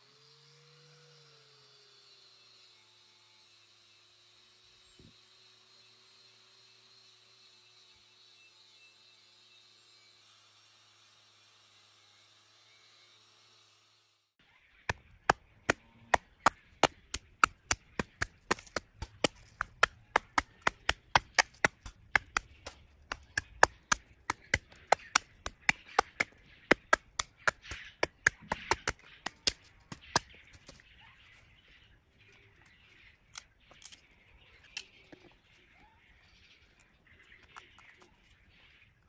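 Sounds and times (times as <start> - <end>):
walnut husks cracking: 14.9 - 30.8.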